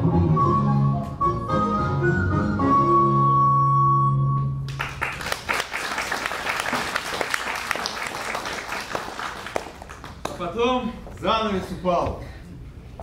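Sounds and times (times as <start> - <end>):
audience applause: 4.7 - 10.3.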